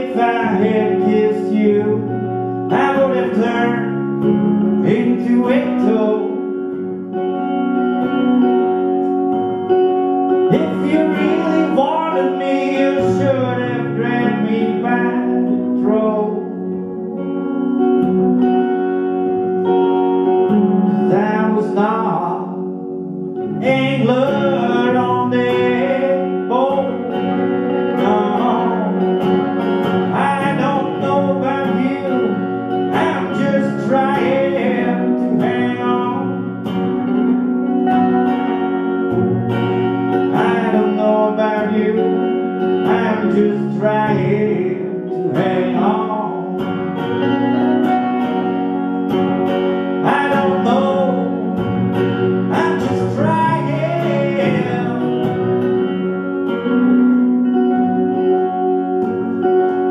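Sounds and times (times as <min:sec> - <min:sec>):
man singing: 0:00.0 - 0:06.9, 0:10.4 - 0:17.5, 0:20.7 - 0:36.8, 0:40.2 - 0:47.0, 0:49.9 - 0:56.0
electric guitars playing: 0:00.0 - 0:59.9.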